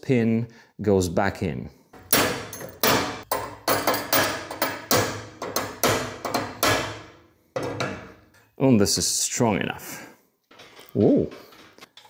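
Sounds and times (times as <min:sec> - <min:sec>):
hammer striking metal chain pin: 0:02.0 - 0:08.3.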